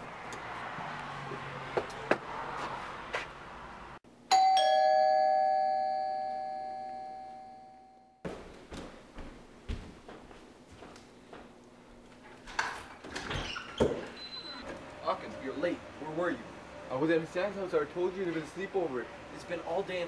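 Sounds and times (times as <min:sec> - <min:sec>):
two-note doorbell chime: 0:04.3 - 0:08.2.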